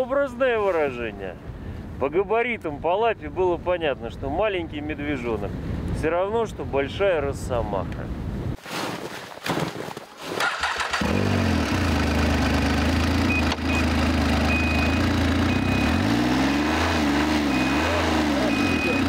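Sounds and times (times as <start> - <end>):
knocks and rustles: 8.6 - 10.5
snowmobile engine running: 11.0 - 19.0
short high beep: 13.2 - 16.1, 17.4 - 19.0.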